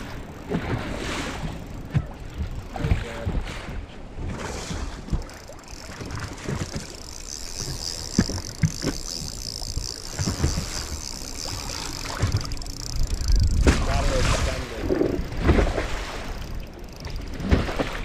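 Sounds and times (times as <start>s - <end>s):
water lapping against boat: 0.0s - 18.0s
wind buffeting microphone: 0.0s - 18.0s.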